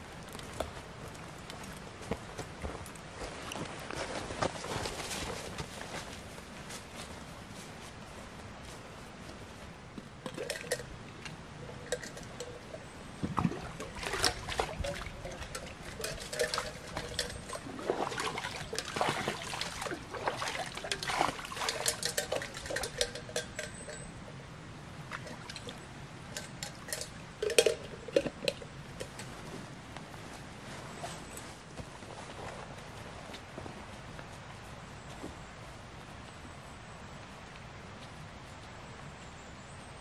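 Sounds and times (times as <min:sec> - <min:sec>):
water pouring and splashing: 0:10.2 - 0:24.0, 0:25.1 - 0:28.7
cup clinking: 0:11.6 - 0:12.9, 0:13.8 - 0:19.4, 0:20.8 - 0:24.2, 0:26.3 - 0:28.7.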